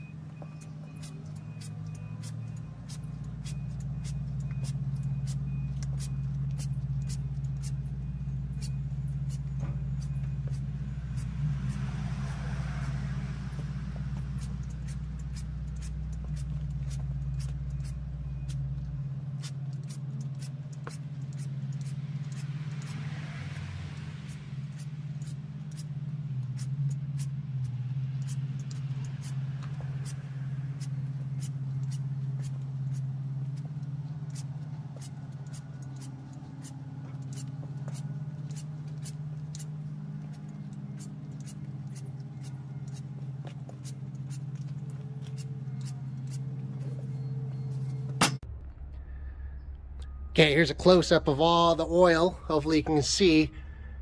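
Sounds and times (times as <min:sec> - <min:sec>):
reversing beeps: 0:00.0 - 0:11.2, 0:16.9 - 0:19.3, 0:46.8 - 0:48.3, 0:49.1 - 0:51.0
vehicle engine rumbling: 0:00.0 - 0:54.0
trigger spray bottle spritzing: 0:00.6 - 0:07.9, 0:14.4 - 0:23.6, 0:24.3 - 0:46.8.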